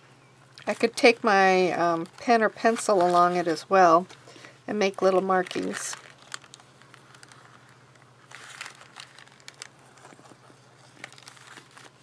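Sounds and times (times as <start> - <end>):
paper filter rustling: 0.7 - 12.0.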